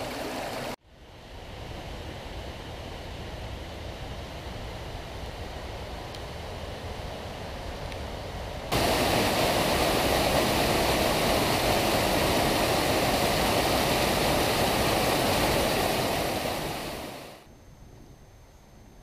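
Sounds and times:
stream rushing over rocks: 0.0s - 0.8s, 8.7s - 17.4s.

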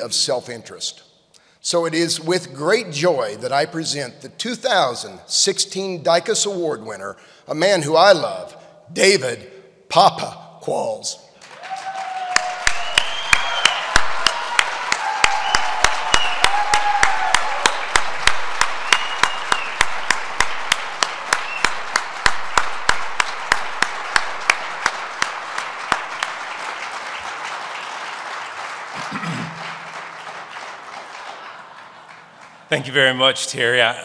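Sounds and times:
loud close hand claps: 11.4s - 32.6s
audience applauding: 11.4s - 33.2s.

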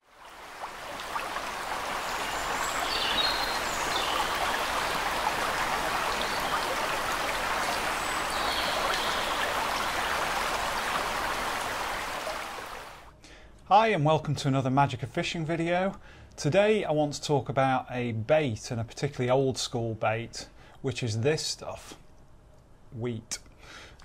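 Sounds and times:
river water rushing: 0.0s - 13.1s.

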